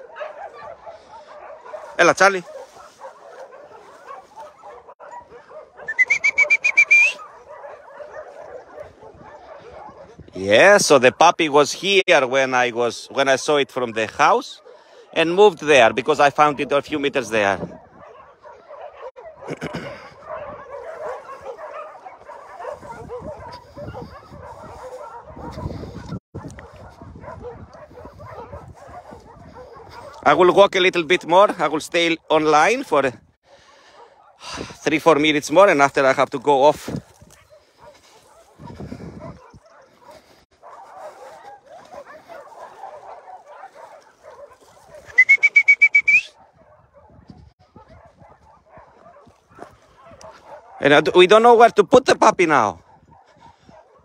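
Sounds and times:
many dogs barking and yelping: 0.0s - 54.0s
high trilled whistle: 5.9s - 7.2s, 45.2s - 46.3s.

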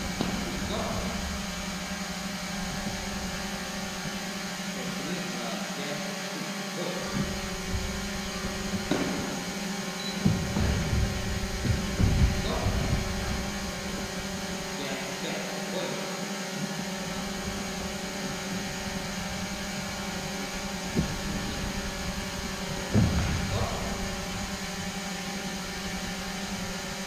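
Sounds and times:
dull footsteps on gym mat: 0.0s - 4.2s, 7.1s - 14.7s, 17.1s - 26.8s
steady hum: 0.0s - 27.0s
sharp knock: 8.8s - 9.4s.

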